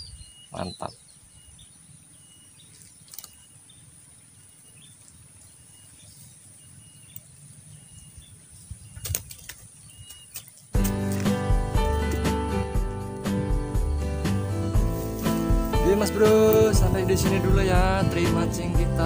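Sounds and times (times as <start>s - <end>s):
bird chirping: 0.0s - 12.4s
faint clicks: 2.7s - 3.4s.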